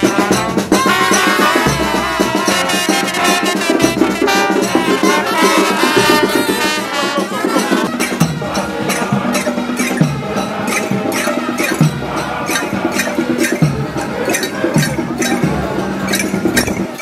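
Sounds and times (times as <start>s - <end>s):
brass band playing: 0.0s - 17.0s
percussion: 0.0s - 17.0s.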